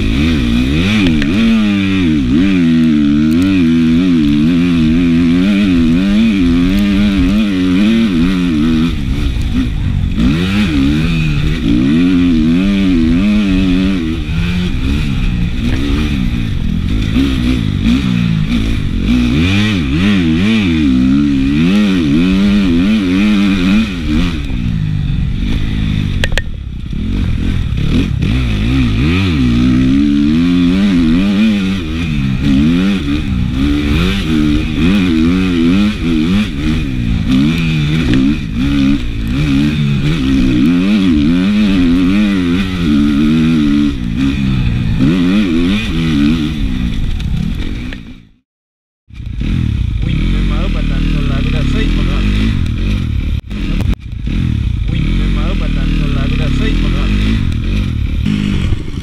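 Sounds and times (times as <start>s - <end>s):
dirt bike engine revving: 0.0s - 48.4s, 49.1s - 59.0s.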